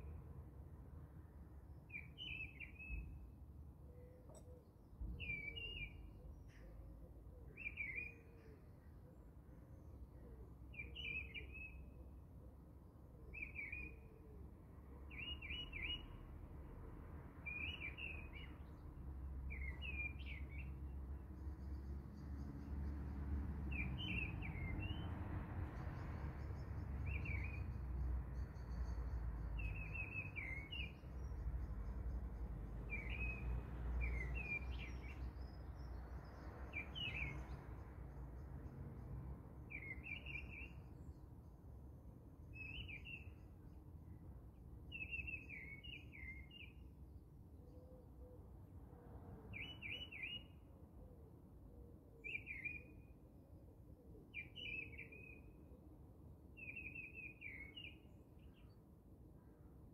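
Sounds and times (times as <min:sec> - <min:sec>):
bird chirping: 0:01.9 - 0:03.2, 0:03.9 - 0:06.8, 0:07.4 - 0:08.7, 0:15.1 - 0:16.2, 0:17.4 - 0:18.8, 0:26.0 - 0:38.5, 0:39.7 - 0:41.2, 0:42.5 - 0:43.8, 0:44.9 - 0:46.8, 0:49.5 - 0:50.6, 0:52.2 - 0:53.1, 0:54.3 - 0:55.6, 0:56.6 - 0:58.8.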